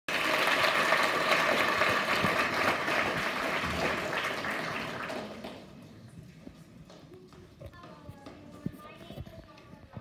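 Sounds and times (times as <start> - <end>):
audience applauding: 0.1 - 5.7.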